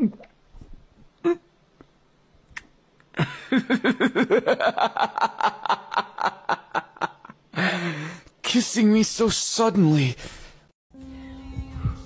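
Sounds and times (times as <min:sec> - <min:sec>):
person laughing hard: 0:03.2 - 0:07.7.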